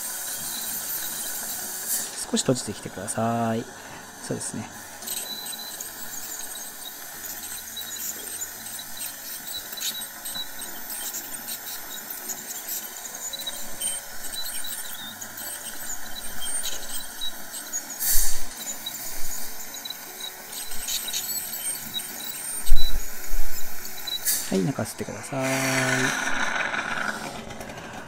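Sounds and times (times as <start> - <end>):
dental scaler hissing: 0.0 - 28.0
suction tube slurping: 23.9 - 28.0.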